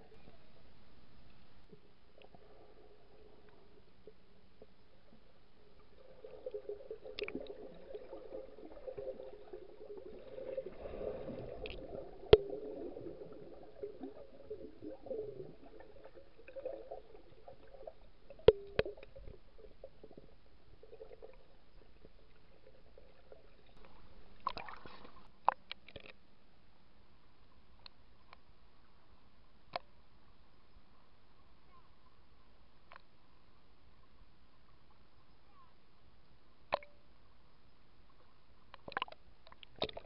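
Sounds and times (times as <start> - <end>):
muffled water sloshing underwater: 0.0 - 26.3.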